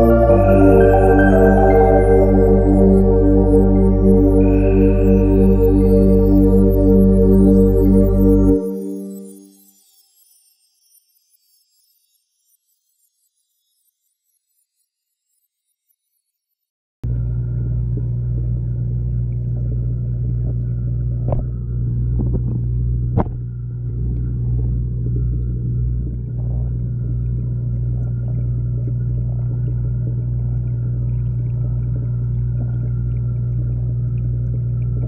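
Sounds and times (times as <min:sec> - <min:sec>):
underwater hum and rumble: 0:00.0 - 0:08.9, 0:17.0 - 0:35.0.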